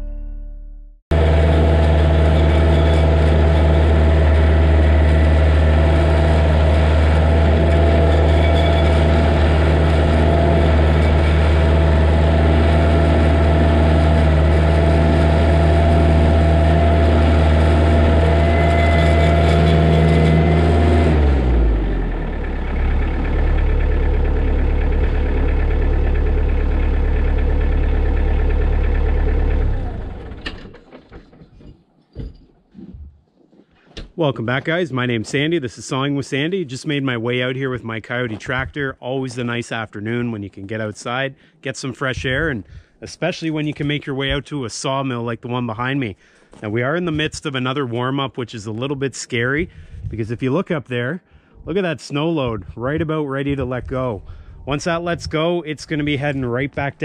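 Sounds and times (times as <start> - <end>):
tractor diesel engine running: 1.1 - 32.3, 51.2 - 57.0.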